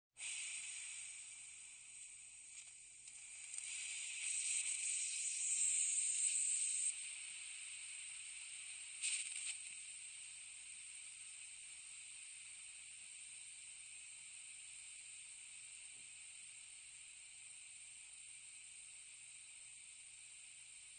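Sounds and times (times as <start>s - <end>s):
compressed air hissing from tank: 0.2s - 10.1s.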